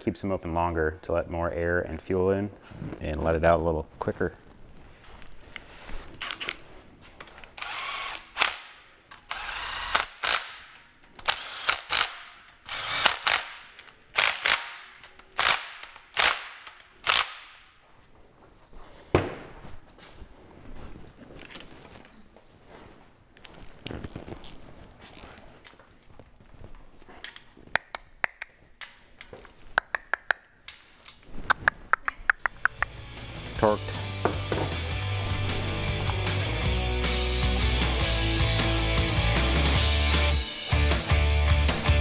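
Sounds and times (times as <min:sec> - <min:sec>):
power tool driving bolts: 0:07.5 - 0:17.6.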